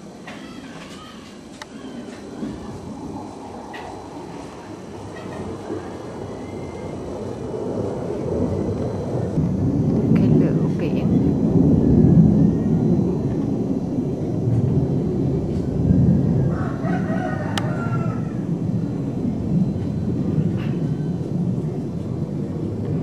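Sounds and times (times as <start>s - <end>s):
low microphone rumble: 1.4s - 23.0s
rooster crowing: 5.1s - 7.0s, 16.2s - 18.6s.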